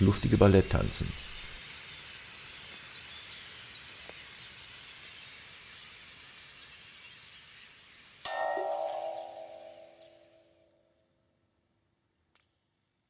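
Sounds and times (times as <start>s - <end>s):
distant starlings chattering: 0.0s - 10.4s.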